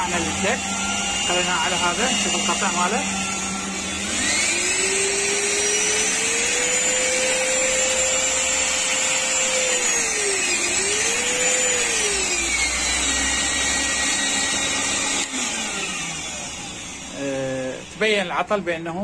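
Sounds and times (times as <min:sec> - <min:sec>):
vacuum cleaner motor whine: 0:00.0 - 0:19.0.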